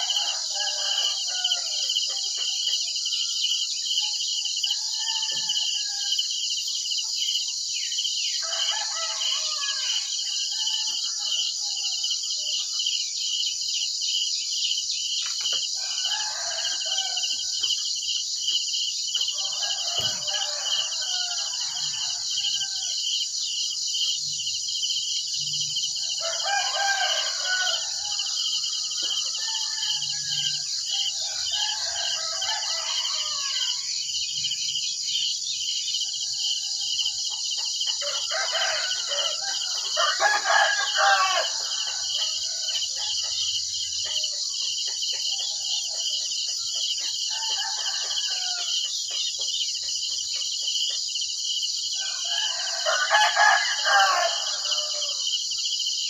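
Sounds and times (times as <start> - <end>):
roosters crowing: 0.0 - 3.4, 4.7 - 6.3, 8.4 - 12.1, 15.7 - 17.6, 19.2 - 23.0, 25.5 - 34.0, 36.0 - 44.5, 45.2 - 49.0, 52.0 - 55.3
crickets chirring: 0.0 - 56.0.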